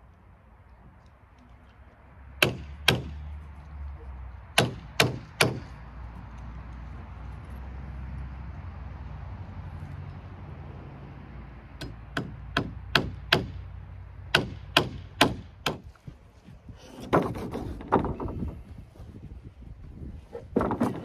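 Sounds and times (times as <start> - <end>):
hammer driving nails into wood: 4.6 - 5.7, 11.8 - 13.6, 14.3 - 15.9
dull knocks of timber: 16.9 - 18.6, 20.4 - 21.0.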